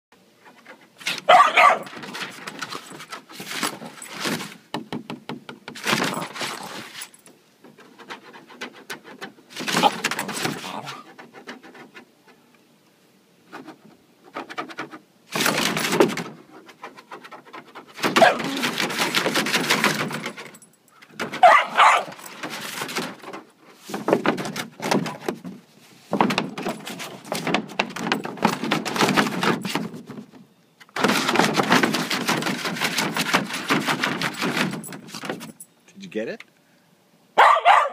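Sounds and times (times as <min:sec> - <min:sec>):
paws scrabbling on plastic pool: 0:00.4 - 0:04.7, 0:05.7 - 0:12.6, 0:13.4 - 0:20.6, 0:21.2 - 0:35.6
puppy barking: 0:01.2 - 0:01.9, 0:18.2 - 0:18.6, 0:21.4 - 0:22.2, 0:37.4 - 0:37.9.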